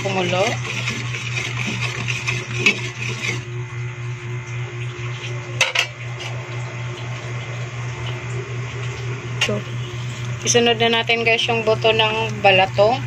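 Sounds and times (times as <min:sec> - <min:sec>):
spatula stirring in a metal pot: 0:00.0 - 0:03.7
steady low hum: 0:00.0 - 0:13.0.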